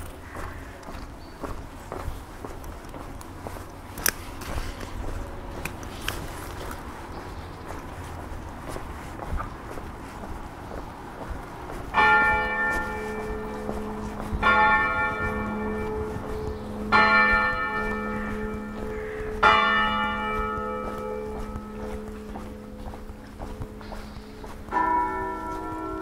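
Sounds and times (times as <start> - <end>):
church bell tolling: 12.0 - 26.0.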